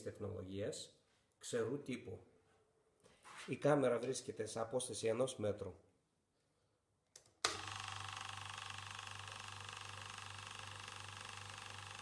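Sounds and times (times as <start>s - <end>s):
air compressor motor humming: 7.5s - 12.0s.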